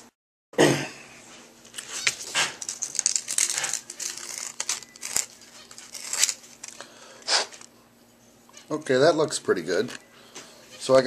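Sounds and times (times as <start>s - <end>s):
sandpaper scratching copper pipe: 3.3s - 6.4s.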